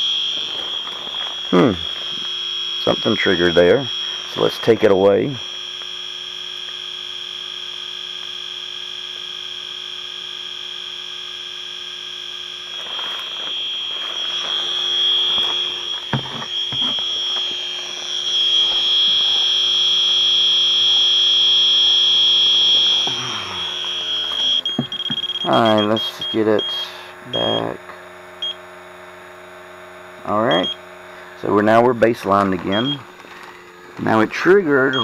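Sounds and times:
high-pitched alarm tone: 0.0 - 27.8, 30.3 - 30.8, 31.4 - 33.1, 34.0 - 35.0
handling rustle: 12.7 - 18.2.

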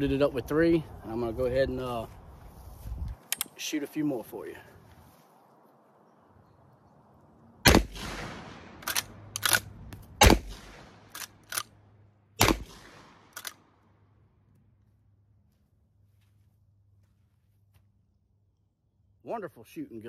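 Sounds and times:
shotgun shots: 7.6 - 11.6, 12.4 - 13.6.

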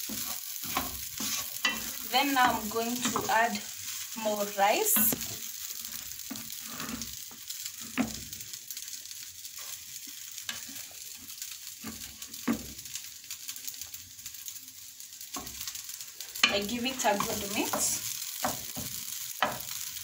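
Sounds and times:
spatula scraping and knocking pan: 0.0 - 8.4, 10.4 - 12.9, 16.4 - 19.8
rice sizzling in a frying pan: 0.0 - 20.0.

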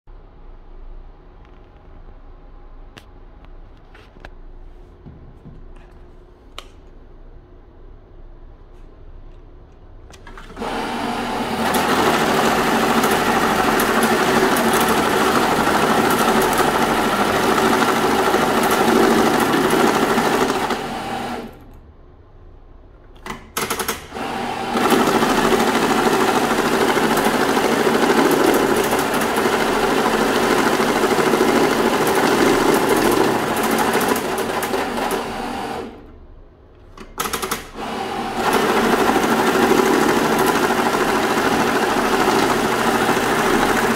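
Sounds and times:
money counter whirring rattle: 10.2 - 21.6, 23.6 - 36.0, 37.2 - 43.9.

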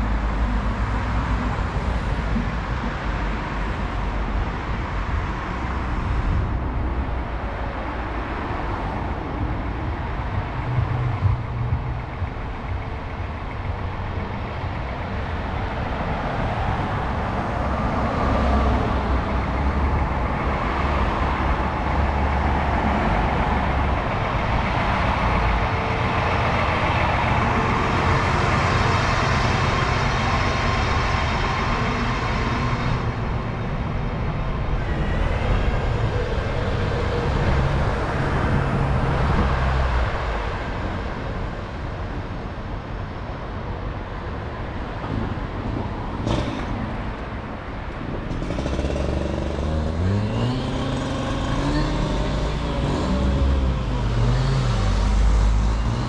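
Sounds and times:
cars passing: 0.0 - 56.0
heavy diesel engine running: 0.0 - 56.0.

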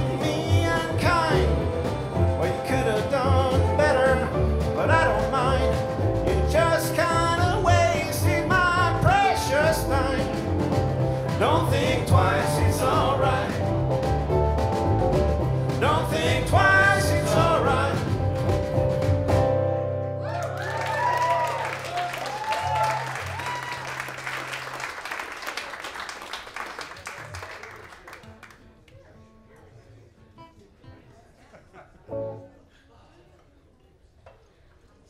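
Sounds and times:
upright bass: 0.0 - 21.7.

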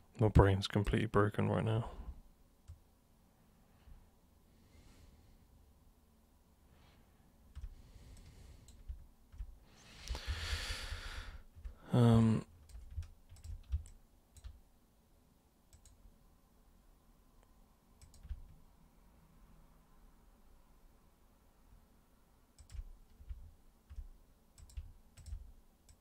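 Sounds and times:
sighing breath: 9.7 - 11.9.

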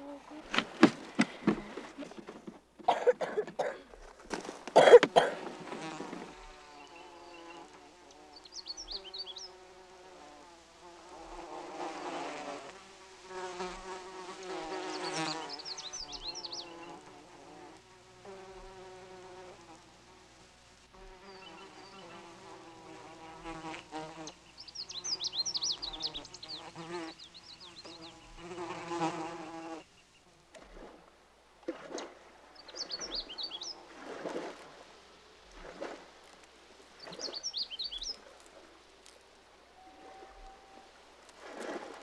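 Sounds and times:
loud rustling and cracks: 0.4 - 6.5
flying insects buzzing: 4.0 - 42.0.

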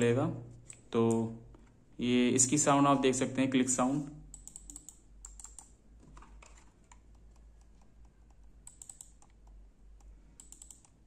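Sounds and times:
computer mouse clicks: 4.3 - 11.0.

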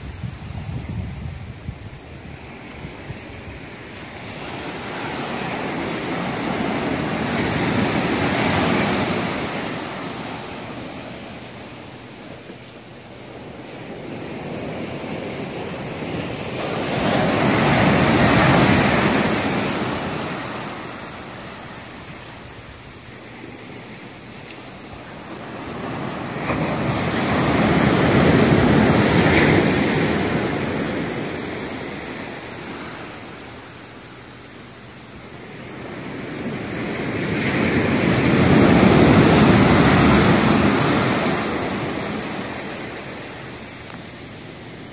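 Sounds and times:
ocean surf breaking: 2.0 - 44.9.

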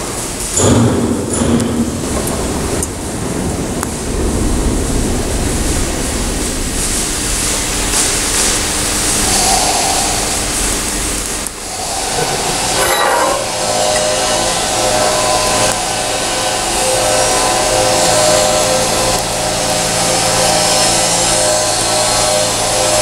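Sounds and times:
welding arc hissing: 6.9 - 15.7.

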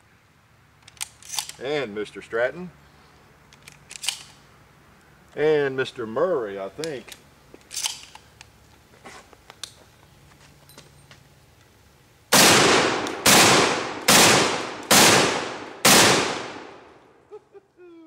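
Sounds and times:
loud shotgun shots: 12.3 - 16.9.

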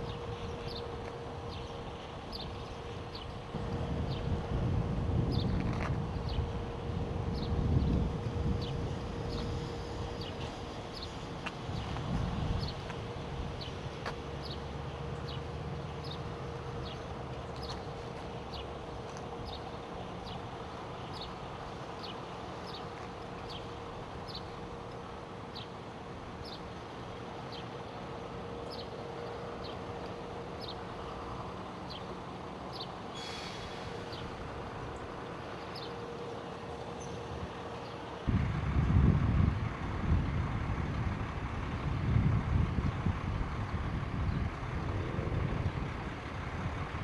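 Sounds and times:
truck engine idling: 6.0 - 47.0
brief hiss: 33.2 - 34.1.

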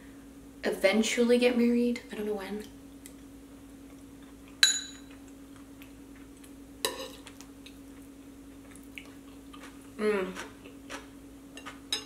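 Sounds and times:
steady low hum: 0.0 - 12.0
metal spoon clinking on ceramic bowl: 4.6 - 5.1.

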